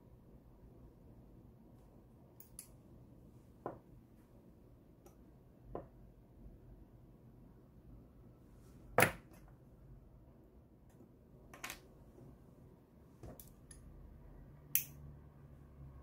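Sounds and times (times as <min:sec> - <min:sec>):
pliers clicking on wire: 0:02.4 - 0:02.8, 0:14.7 - 0:15.0.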